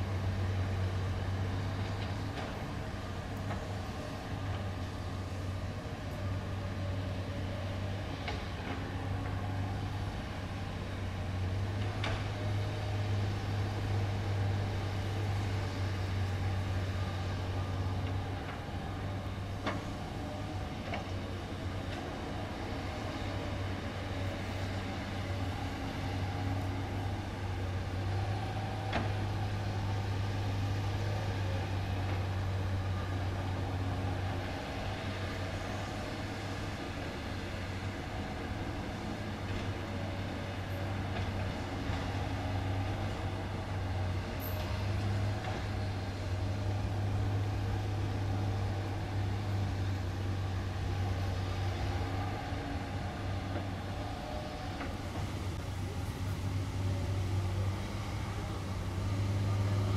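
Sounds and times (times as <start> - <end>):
excavator diesel engine humming: 0.0 - 59.9.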